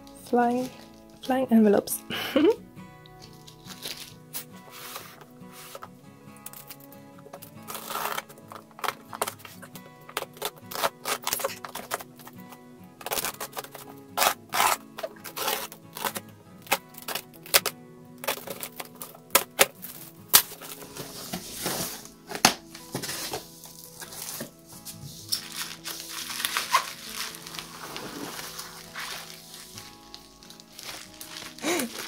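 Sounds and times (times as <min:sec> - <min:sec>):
bubble wrap rustling: 0:00.0 - 0:01.4, 0:02.1 - 0:32.0
background music: 0:00.0 - 0:32.0
box cutter slicing tape: 0:07.6 - 0:12.4, 0:13.0 - 0:20.6
cardboard flaps pulled open: 0:25.3 - 0:29.8.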